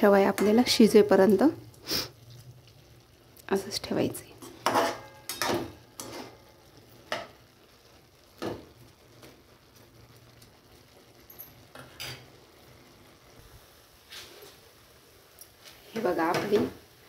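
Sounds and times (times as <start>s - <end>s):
faint sizzle from pan: 0.0s - 17.0s
metal spoon scraping pan: 4.4s - 6.4s.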